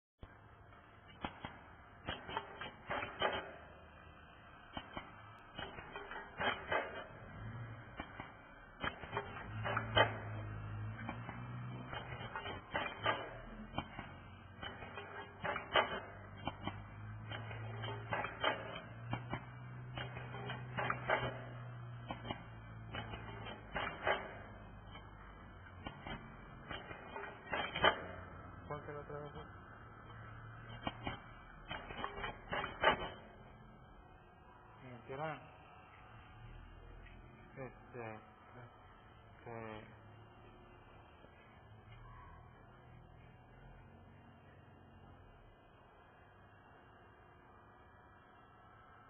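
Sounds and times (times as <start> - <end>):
low hum: 0.2 - 49.0
machine mechanical clacks: 0.3 - 33.9.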